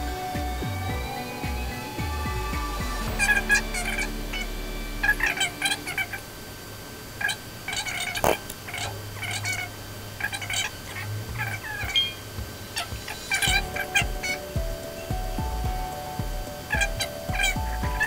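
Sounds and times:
background music with bass note: 0.0s - 6.1s, 12.4s - 18.0s
wavering high-pitched calls: 0.1s - 6.3s.

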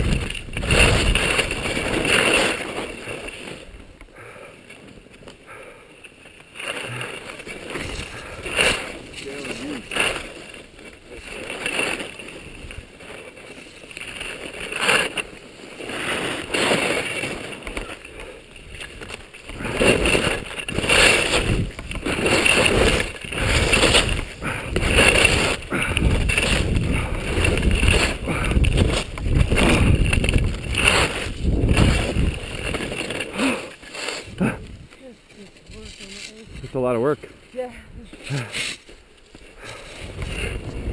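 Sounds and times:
wind on microphone: 0.0s - 2.2s, 18.8s - 33.0s, 34.2s - 35.0s, 39.6s - 40.9s
skis scraping over snow: 0.0s - 40.9s.

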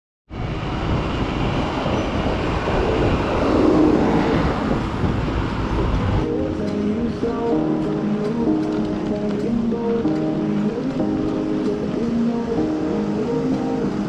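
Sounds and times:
wind on microphone: 0.3s - 14.0s
background music: 6.2s - 14.0s.

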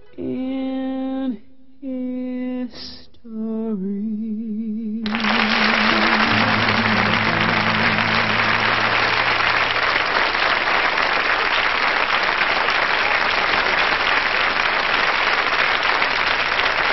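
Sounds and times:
audience applauding: 5.1s - 16.9s.

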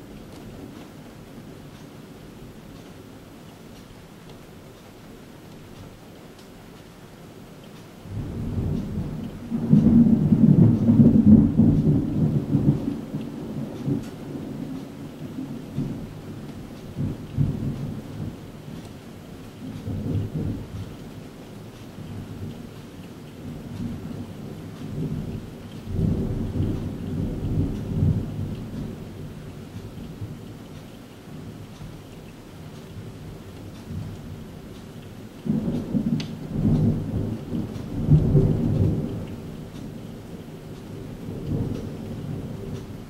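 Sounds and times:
thunder rumbling: 8.1s - 18.9s, 19.5s - 21.3s, 21.9s - 31.6s, 32.6s - 43.0s.

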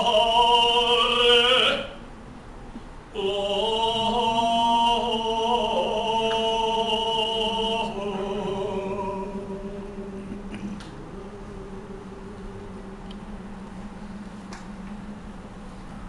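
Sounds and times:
man chanting: 0.0s - 2.0s, 3.2s - 13.5s.

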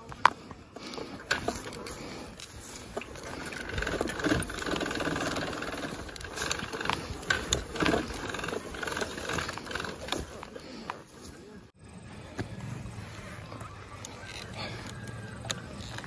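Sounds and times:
dirt bike engine running: 1.2s - 14.8s
bike knocking over ruts: 2.8s - 10.5s.

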